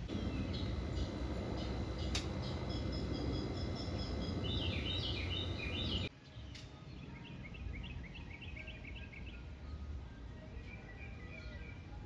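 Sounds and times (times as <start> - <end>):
low rumble: 0.0 - 6.1
songbirds chirping: 0.0 - 12.0.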